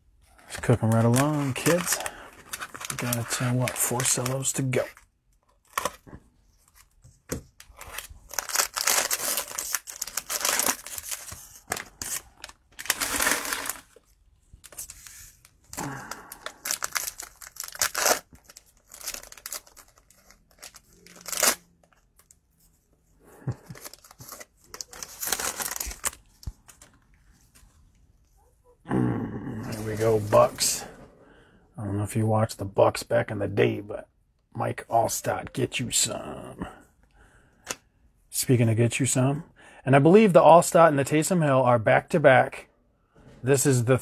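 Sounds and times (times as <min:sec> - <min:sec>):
cellophane wrappers tearing and crinkling: 0:00.8 - 0:05.0, 0:07.7 - 0:14.0, 0:15.8 - 0:22.3, 0:23.4 - 0:26.3.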